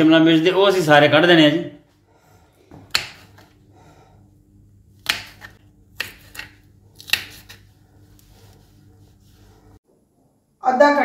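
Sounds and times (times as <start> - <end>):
knife chopping on wooden board: 2.7 - 3.5, 5.0 - 7.6.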